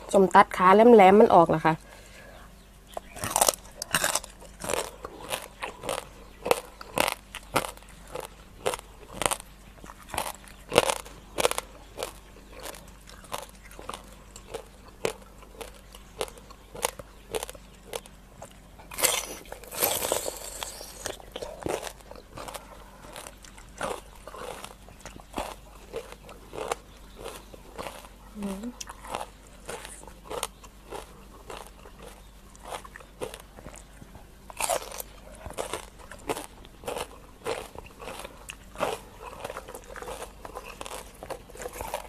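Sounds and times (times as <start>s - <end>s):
crunchy chewing: 1.8s - 42.0s.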